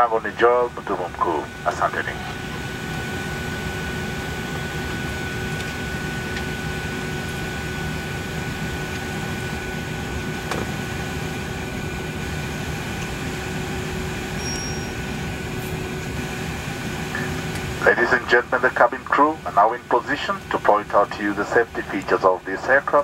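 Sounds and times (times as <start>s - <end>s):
airliner cabin hum and hiss: 0.0s - 23.0s
thin whine: 14.1s - 16.0s.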